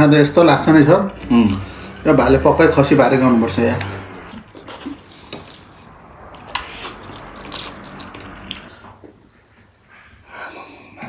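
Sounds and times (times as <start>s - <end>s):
noodles slurped and chewed: 3.8s - 8.8s.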